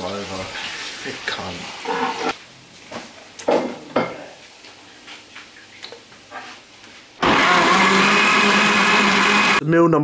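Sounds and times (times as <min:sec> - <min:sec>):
jug blender running: 0:07.2 - 0:09.6.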